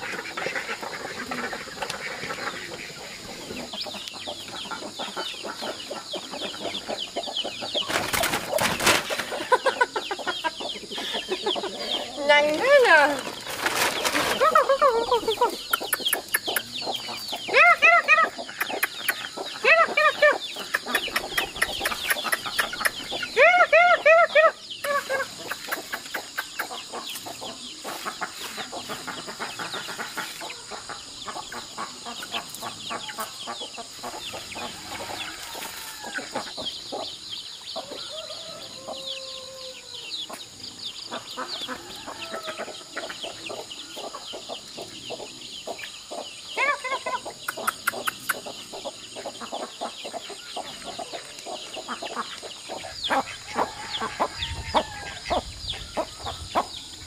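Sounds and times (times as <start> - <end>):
chickens pecking on ground: 0.0 - 23.9, 24.8 - 39.0
chickens clucking: 0.0 - 57.0
chicks peeping: 0.0 - 57.0.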